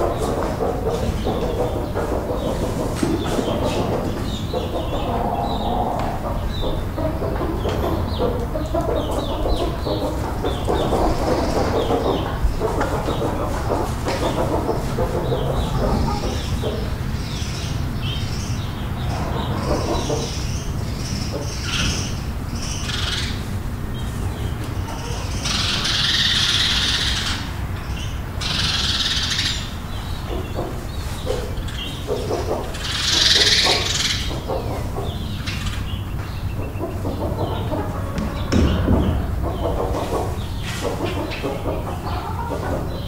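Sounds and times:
chickens clucking: 0.0 - 43.0
harsh chicken squawks: 24.8 - 27.7, 28.4 - 29.8.

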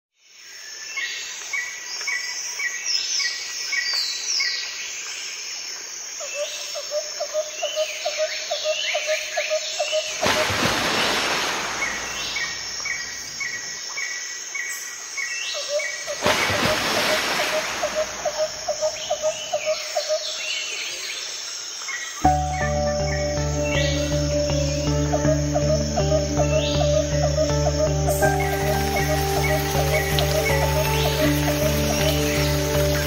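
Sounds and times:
birds singing dawn chorus: 0.2 - 33.0
lower bird call: 22.2 - 33.0.

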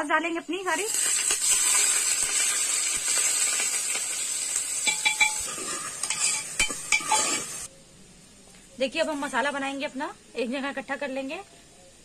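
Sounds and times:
onions sizzling in hot oil: 0.0 - 7.7, 8.8 - 12.0
metal spoon scraping pot: 4.9 - 7.7.

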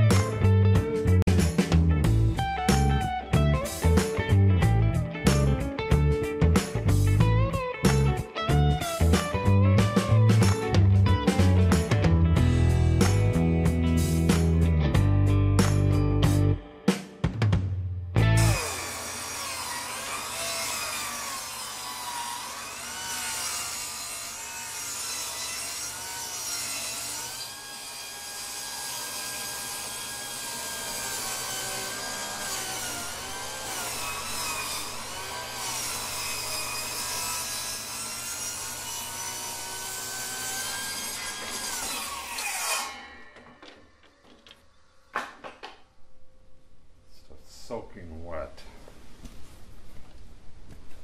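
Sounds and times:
electric saw cutting wood: 6.4 - 14.5, 18.2 - 45.4.

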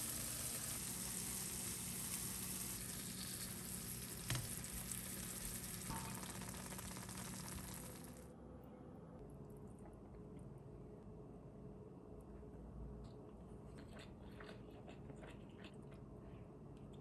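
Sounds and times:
food sizzling in frying pan: 0.0 - 8.2.

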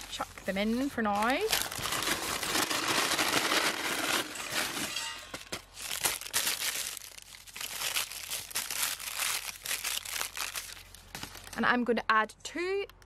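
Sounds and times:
paper bag crinkling: 0.0 - 11.6.

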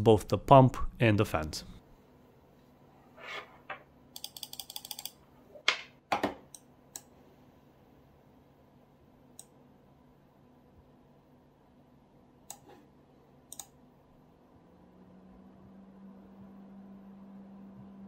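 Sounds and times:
computer mouse clicking: 4.2 - 5.2, 6.5 - 7.1, 12.5 - 12.7, 13.5 - 13.8.

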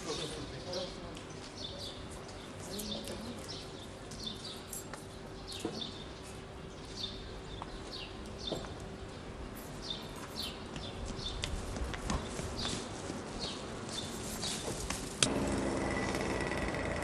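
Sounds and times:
small birds chirping: 0.0 - 11.5.

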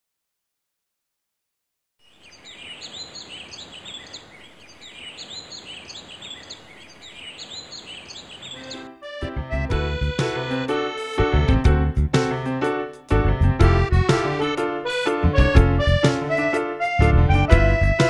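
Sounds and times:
birds chirping: 2.0 - 10.8
music: 8.6 - 18.0.

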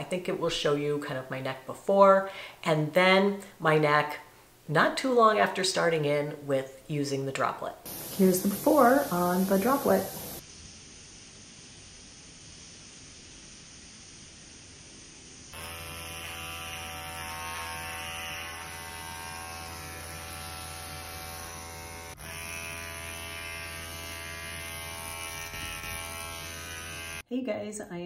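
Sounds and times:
mist device electric buzz: 7.9 - 27.3.

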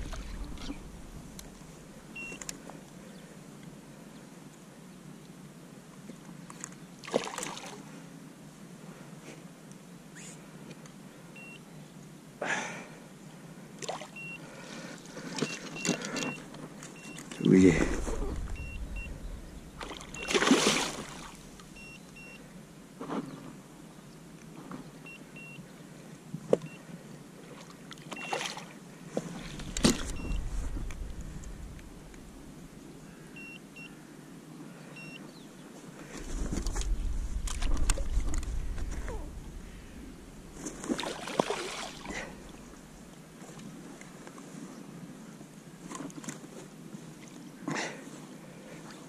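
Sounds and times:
water splashing and sloshing: 0.0 - 2.7, 6.5 - 7.9, 13.8 - 14.4, 15.1 - 22.3, 27.4 - 32.9, 36.0 - 44.4.

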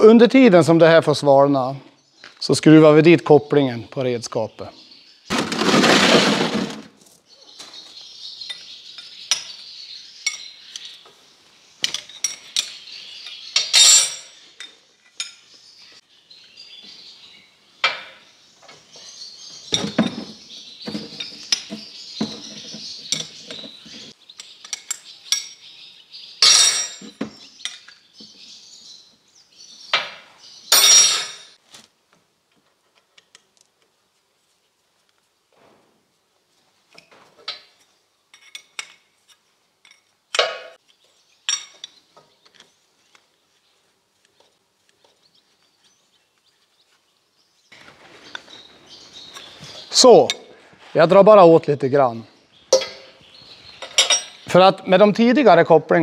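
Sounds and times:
metal fittings and wrenches clinking: 11.8 - 15.4, 26.4 - 27.9, 30.7 - 31.6, 37.0 - 40.7, 53.8 - 54.4.

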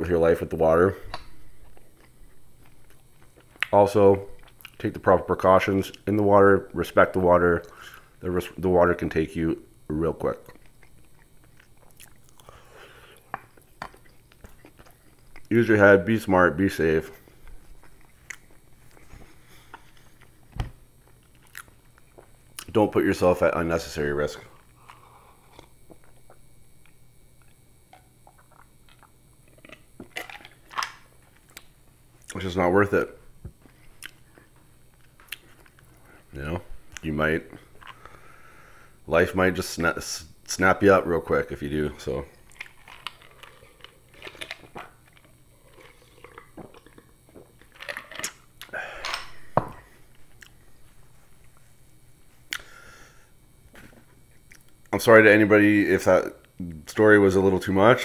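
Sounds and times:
sipping and swallowing: 27.4 - 30.8, 42.4 - 48.8.

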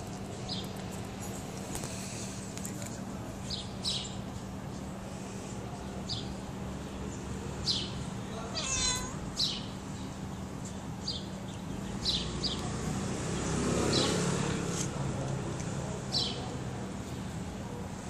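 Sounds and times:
cat meowing: 8.4 - 9.3.

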